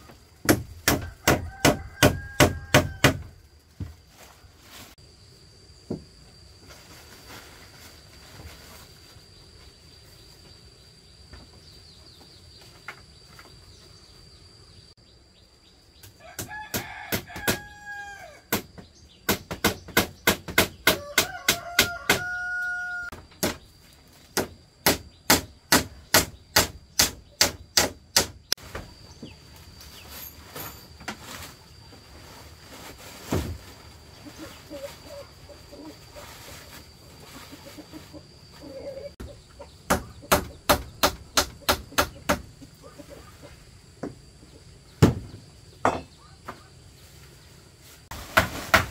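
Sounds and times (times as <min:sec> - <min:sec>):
rooster crowing: 0:01.0 - 0:03.3, 0:16.2 - 0:18.5, 0:20.9 - 0:23.2.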